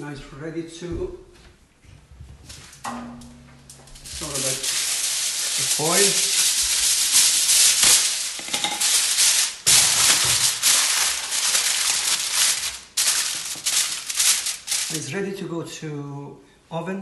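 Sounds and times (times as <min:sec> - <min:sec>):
aluminium foil crinkling: 0:03.8 - 0:15.2.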